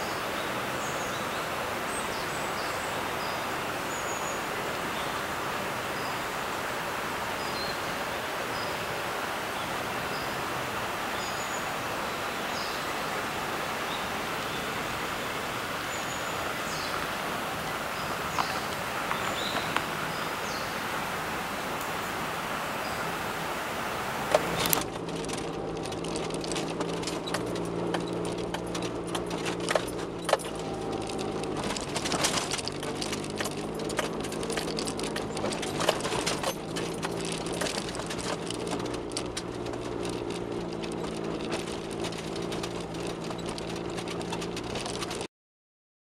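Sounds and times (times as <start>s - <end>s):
car engine running: 0.0s - 45.3s
tyres crunching on gravel: 0.0s - 45.3s.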